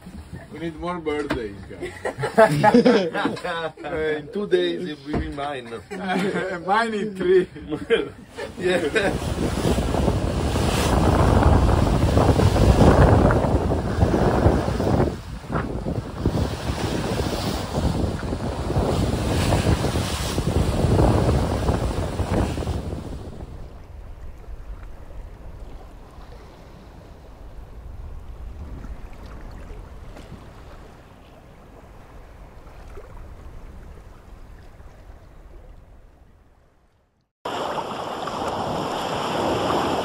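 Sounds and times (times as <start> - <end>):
breaking waves: 0.0 - 36.2, 37.4 - 40.0
wind buffeting microphone: 8.4 - 36.3
wind rushing: 8.5 - 24.7.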